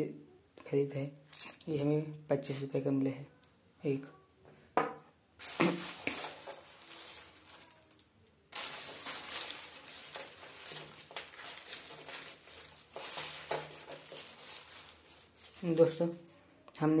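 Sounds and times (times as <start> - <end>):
plastic bag crinkling: 5.4 - 16.4.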